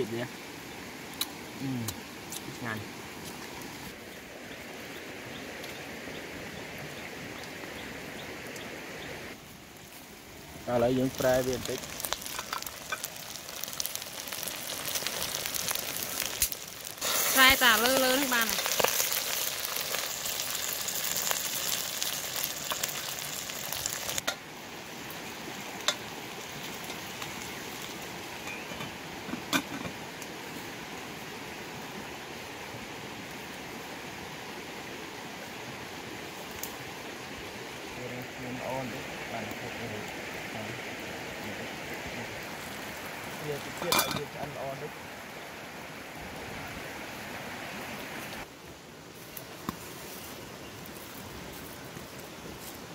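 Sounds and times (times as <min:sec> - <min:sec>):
wood fire crackling: 0:00.0 - 0:52.9
food sizzling in a pot: 0:09.9 - 0:33.2, 0:40.0 - 0:47.7.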